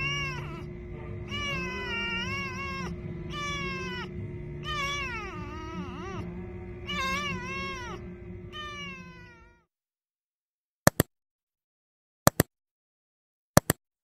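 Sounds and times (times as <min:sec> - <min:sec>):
kitten meowing: 0:00.0 - 0:00.7, 0:01.3 - 0:09.7
steady low hum: 0:00.0 - 0:09.6
mouse-click sound effects: 0:10.9 - 0:11.1, 0:12.3 - 0:12.5, 0:13.6 - 0:13.8.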